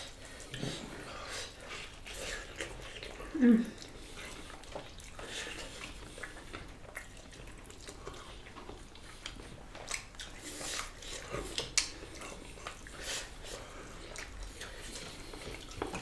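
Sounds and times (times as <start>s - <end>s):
wet chewing and lip smacks: 0.0s - 16.0s.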